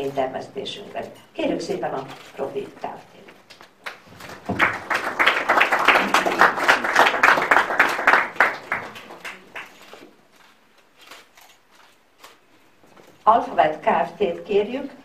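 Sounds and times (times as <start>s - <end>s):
audience applauding: 3.8s - 9.9s.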